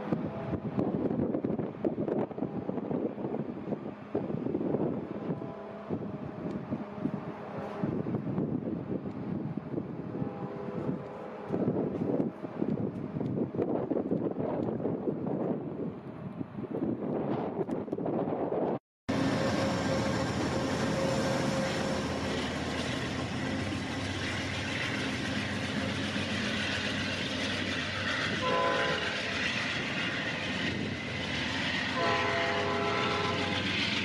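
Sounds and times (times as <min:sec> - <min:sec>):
train horn: 0:00.0 - 0:00.8, 0:02.4 - 0:02.9, 0:05.1 - 0:08.0, 0:10.1 - 0:11.8, 0:19.1 - 0:22.5, 0:28.1 - 0:29.6, 0:31.8 - 0:33.9
diesel locomotive engine under load: 0:00.0 - 0:34.0.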